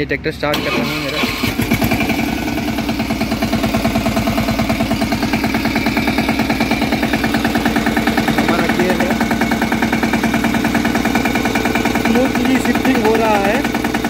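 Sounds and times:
diesel tractor engine idling: 0:00.0 - 0:14.0.

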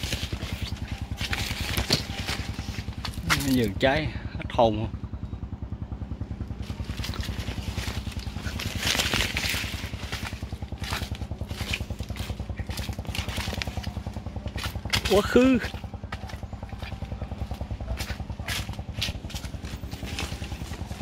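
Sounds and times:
footsteps on dry leaves: 0:00.0 - 0:03.7, 0:06.5 - 0:21.0
small engine running: 0:00.0 - 0:21.0.

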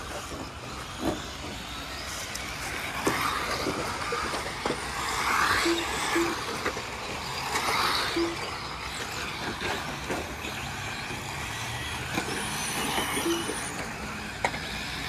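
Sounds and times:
electric toy car motors whirring: 0:00.0 - 0:15.0
short beeps: 0:05.6 - 0:06.4, 0:08.1 - 0:08.6.

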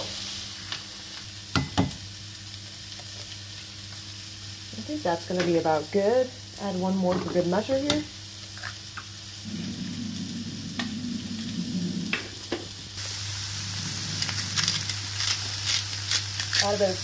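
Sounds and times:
food sizzling in a pan: 0:00.0 - 0:17.0
low hum: 0:09.4 - 0:15.0.

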